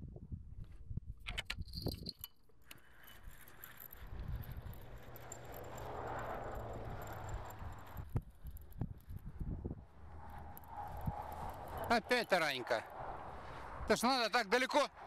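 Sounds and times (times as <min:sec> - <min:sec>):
reel clicks and clinks: 0:01.2 - 0:09.4, 0:10.1 - 0:12.8
fishing reel whirring: 0:01.8 - 0:09.3, 0:10.0 - 0:13.0.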